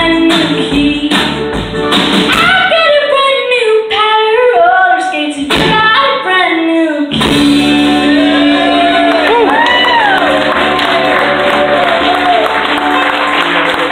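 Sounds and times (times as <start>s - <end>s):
woman singing: 0.0s - 1.4s, 2.3s - 9.6s
live band playing: 0.0s - 6.3s, 7.0s - 13.9s.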